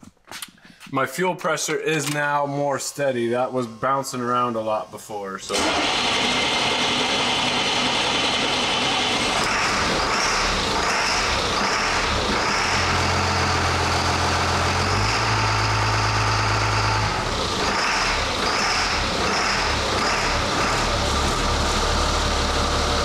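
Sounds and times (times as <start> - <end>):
diesel engine running: 5.4 - 23.0.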